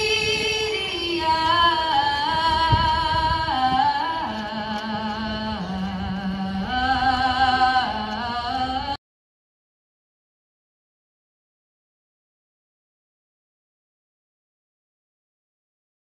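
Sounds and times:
slow vocal music: 0:00.0 - 0:09.0.

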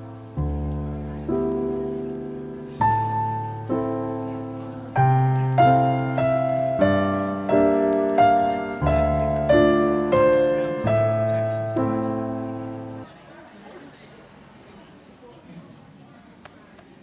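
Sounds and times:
slow piano music: 0:00.0 - 0:13.1.

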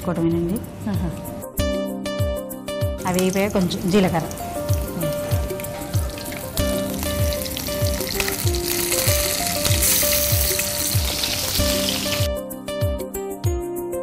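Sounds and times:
background music with steady beat: 0:00.0 - 0:14.0
hot oil sizzling in a frying pan: 0:03.1 - 0:12.3.

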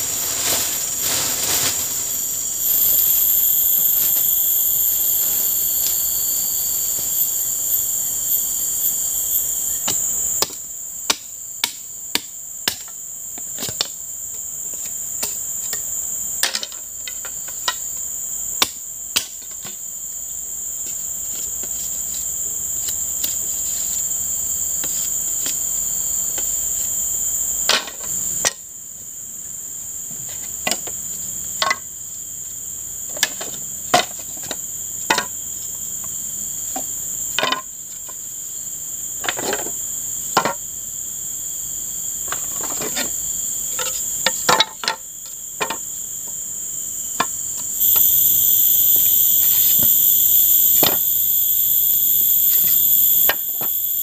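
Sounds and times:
forest insects chorus: 0:00.0 - 0:54.0
machete knocking on bamboo: 0:09.9 - 0:12.9.

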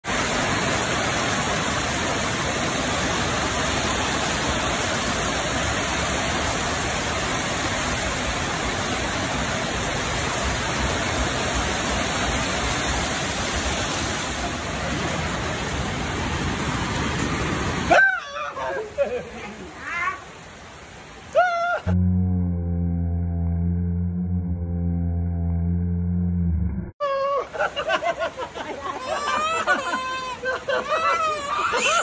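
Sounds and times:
heavy rain on concrete and leaves: 0:00.0 - 0:22.0, 0:27.1 - 0:32.0.

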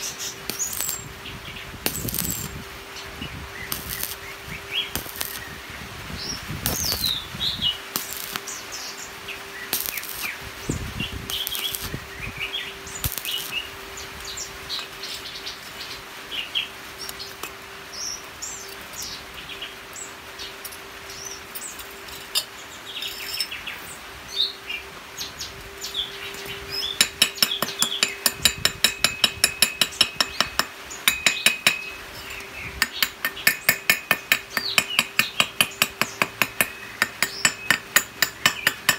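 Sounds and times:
chipping hammer tapping metal: 0:00.0 - 0:01.0, 0:01.8 - 0:02.6, 0:04.9 - 0:05.4, 0:07.9 - 0:08.4, 0:09.7 - 0:10.4, 0:27.0 - 0:38.9
welding arc crackling: 0:00.0 - 0:15.2, 0:26.3 - 0:38.9.

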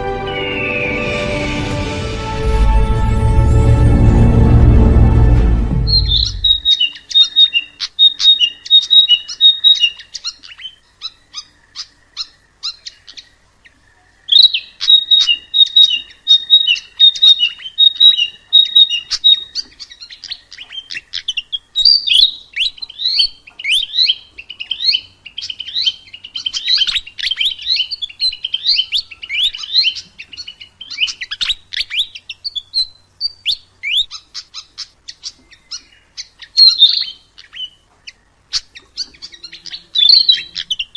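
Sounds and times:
bird chirping: 0:00.0 - 0:01.6, 0:05.7 - 0:40.9
bird singing high notes: 0:00.0 - 0:03.2, 0:05.4 - 0:10.1, 0:14.3 - 0:19.6, 0:39.0 - 0:40.9.

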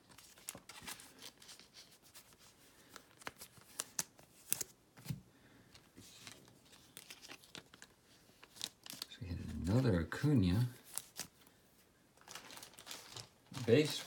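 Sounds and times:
cards clicking and snapping: 0:02.9 - 0:04.7.

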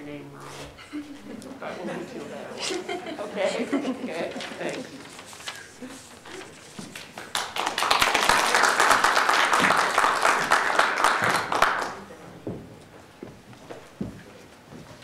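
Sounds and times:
audience applauding: 0:06.9 - 0:12.1.

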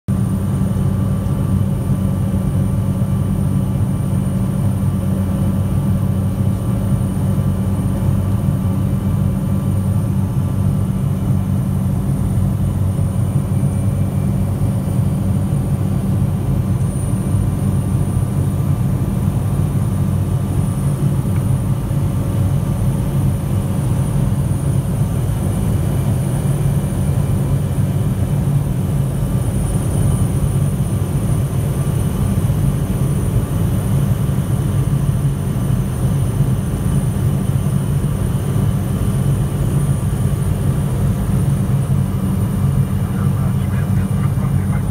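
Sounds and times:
turboprop engine drone: 0:00.1 - 0:44.9
high whine: 0:41.6 - 0:44.9.

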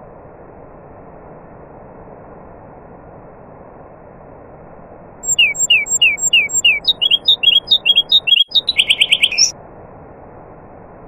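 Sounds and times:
nightingale singing: 0:05.2 - 0:09.5.

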